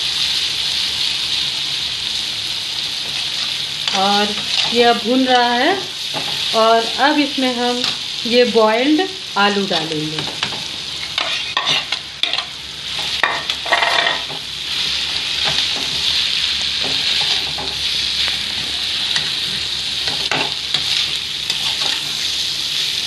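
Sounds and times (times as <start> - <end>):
oil sizzling: 0.0 - 23.0
metal spoon scraping a pan: 3.0 - 4.8, 10.4 - 22.5.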